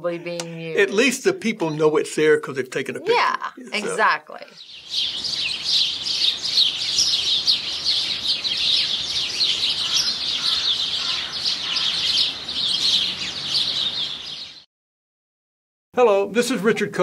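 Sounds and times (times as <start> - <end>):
small songbirds chirping: 4.5 - 14.7.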